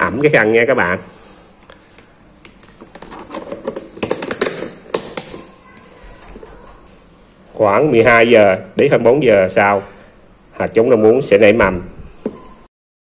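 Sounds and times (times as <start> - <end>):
plastic containers clicking: 1.6 - 5.5.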